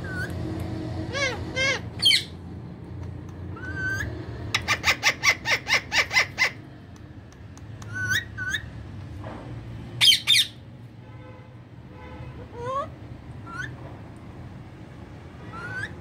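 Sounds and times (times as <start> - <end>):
parakeets squawking: 0.0 - 2.4, 3.4 - 6.7, 7.8 - 8.8, 10.0 - 10.6, 15.4 - 16.0.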